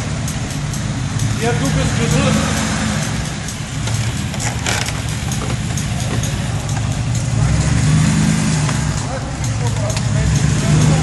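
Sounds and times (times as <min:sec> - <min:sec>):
car engine idling: 0:00.0 - 0:11.0.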